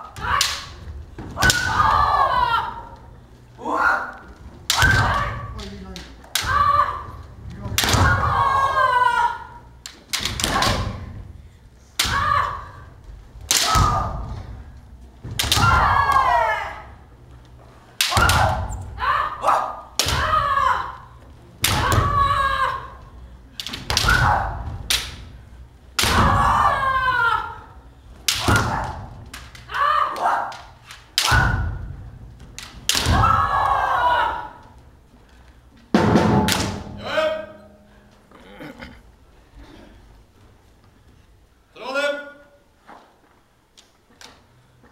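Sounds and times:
people shouting: 0:00.0 - 0:05.7, 0:06.3 - 0:11.2, 0:12.0 - 0:14.8, 0:15.4 - 0:17.1, 0:18.0 - 0:25.2, 0:26.0 - 0:32.0, 0:32.9 - 0:34.8, 0:36.4 - 0:38.0
bamboo swords striking: 0:00.2 - 0:00.8, 0:01.4 - 0:02.2, 0:07.7 - 0:08.5, 0:09.9 - 0:11.1, 0:13.4 - 0:14.4, 0:15.3 - 0:16.4, 0:18.0 - 0:18.7, 0:23.6 - 0:25.3, 0:26.0 - 0:26.6, 0:28.2 - 0:31.8, 0:32.6 - 0:33.8, 0:36.0 - 0:37.6.

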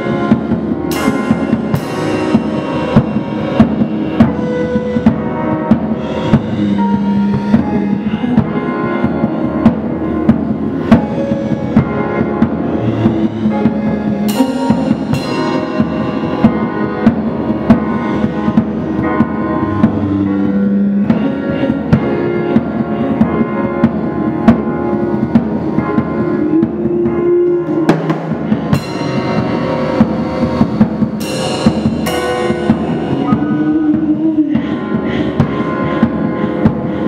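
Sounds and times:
cymbal crashes: 0:00.0 - 0:22.9, 0:27.8 - 0:37.0
acoustic drum kit: 0:00.0 - 0:37.0
held keyboard and synth notes: 0:00.0 - 0:37.0.

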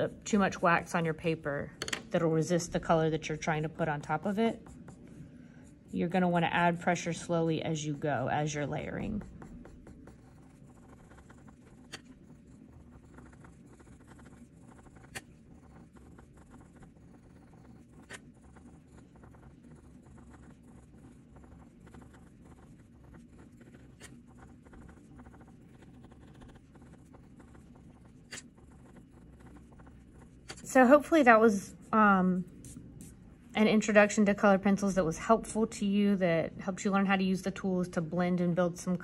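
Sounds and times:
pencils scratching on paper: 0:00.0 - 0:36.1.

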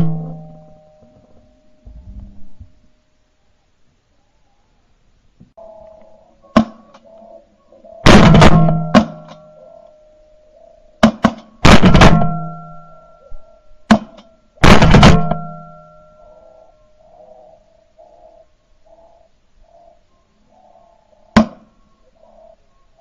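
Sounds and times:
shotgun blasts: 0:08.1 - 0:09.3, 0:11.0 - 0:12.7, 0:13.9 - 0:15.7.

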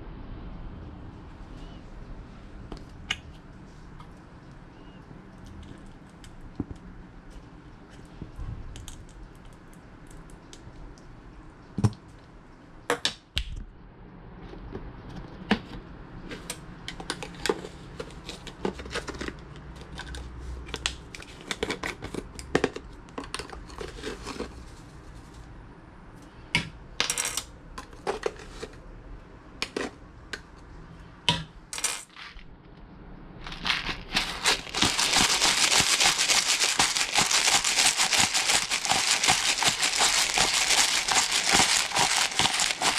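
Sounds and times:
pepper grinder crackling: 0:33.4 - 0:42.9.

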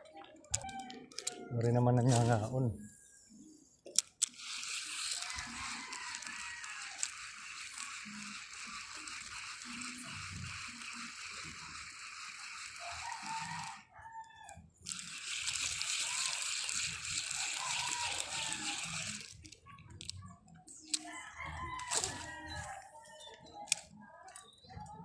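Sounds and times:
rooster crowing: 0:05.2 - 0:07.1, 0:12.8 - 0:14.6, 0:17.3 - 0:19.2, 0:21.0 - 0:22.9.

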